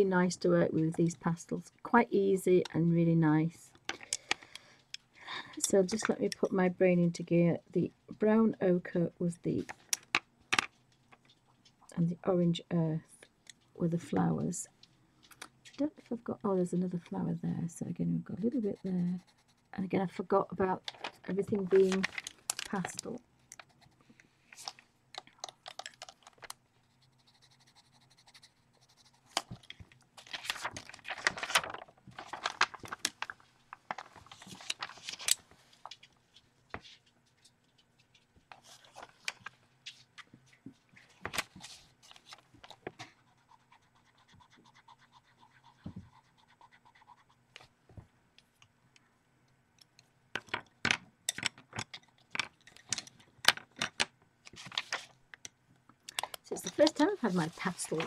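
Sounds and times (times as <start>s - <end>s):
pencil scratching on paper: 18.4s - 19.8s, 26.8s - 29.4s, 43.2s - 47.4s
paper sliding and rustling: 30.2s - 35.4s.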